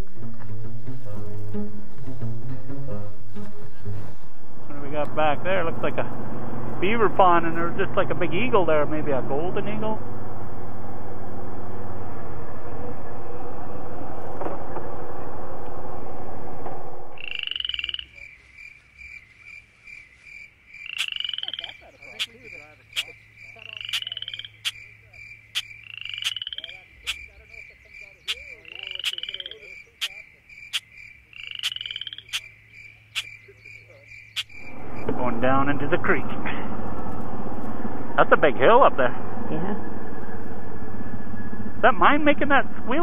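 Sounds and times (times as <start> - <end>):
atv engine running: 0.0 - 17.5, 34.4 - 43.0
frogs calling: 17.1 - 35.2
sharp regular clicks: 25.5 - 27.2, 31.6 - 32.5, 33.1 - 33.4, 34.3 - 34.6.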